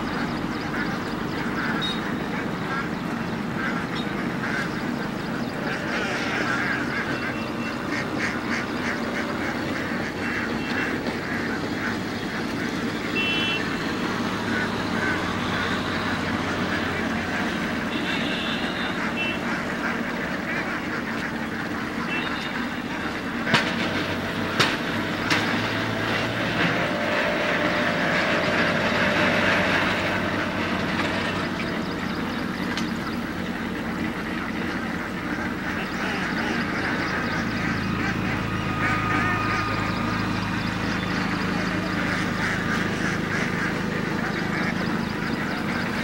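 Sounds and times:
ducks quacking: 0:00.0 - 0:46.0
low hum: 0:21.1 - 0:46.0.

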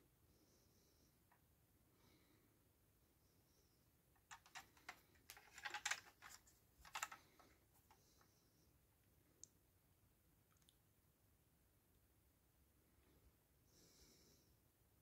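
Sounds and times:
small clicks and taps of handling: 0:04.2 - 0:08.3.

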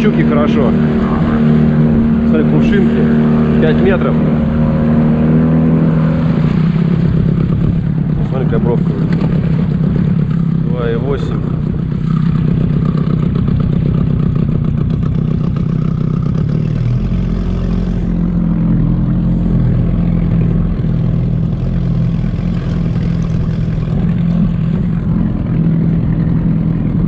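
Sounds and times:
outboard motor running: 0:00.0 - 0:27.0.

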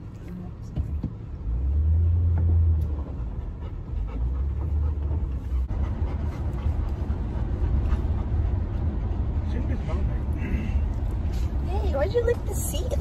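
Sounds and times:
car rumbling on road: 0:00.0 - 0:13.0
dog panting: 0:02.9 - 0:10.4.

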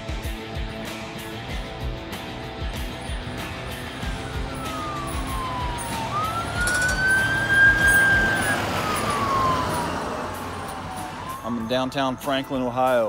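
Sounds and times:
ambulance siren wailing: 0:02.8 - 0:13.0.

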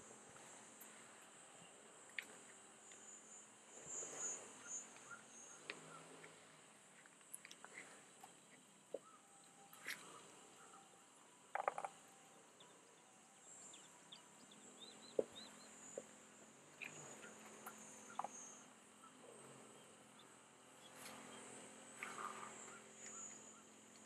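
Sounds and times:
insect drone: 0:00.0 - 0:08.2
bird chirps: 0:02.9 - 0:06.4, 0:07.8 - 0:24.0.

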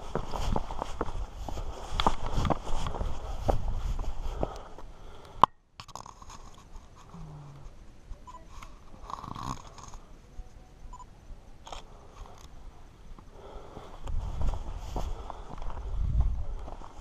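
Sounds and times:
footsteps on rock: 0:00.0 - 0:04.9.

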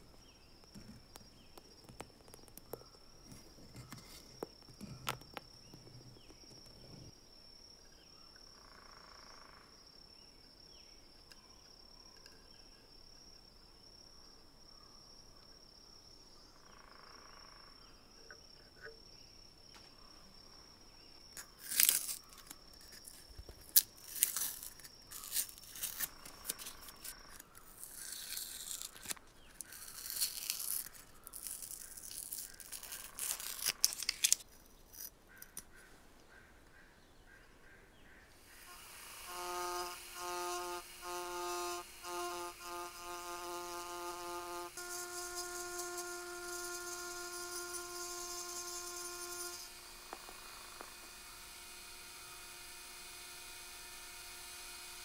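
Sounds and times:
plastic lens clicks: 0:21.4 - 0:35.7.

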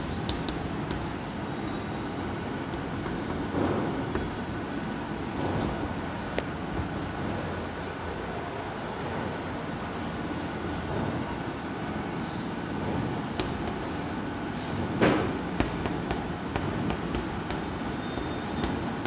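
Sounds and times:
chalk tapping on chalkboard: 0:00.1 - 0:01.2, 0:02.6 - 0:04.4, 0:15.6 - 0:19.0.

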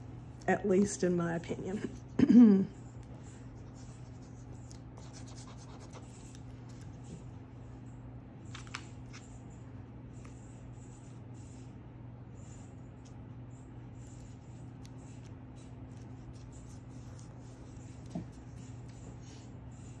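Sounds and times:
steady low hum: 0:00.0 - 0:20.0
paper scratching and rubbing: 0:03.4 - 0:07.0, 0:14.0 - 0:19.2.

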